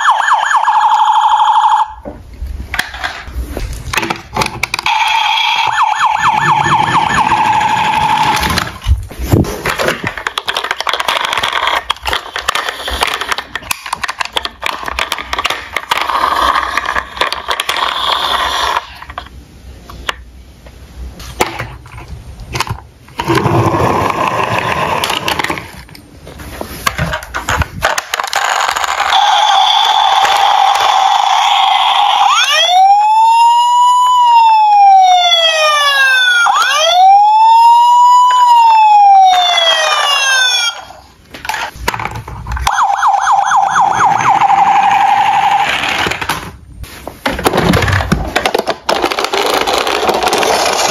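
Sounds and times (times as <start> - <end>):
toy police siren: 0.0 - 2.0, 4.8 - 8.7, 28.5 - 41.0, 42.6 - 46.0
plastic toy cars clattering: 2.7 - 19.3, 21.2 - 32.0, 39.3 - 43.2, 44.1 - 46.6, 47.2 - 50.9.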